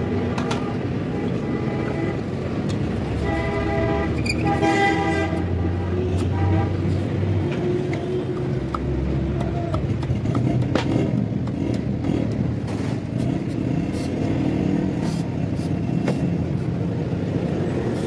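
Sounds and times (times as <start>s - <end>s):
vehicle engines rumbling: 0.0s - 18.0s
sharp knocks and clicks: 9.7s - 12.7s.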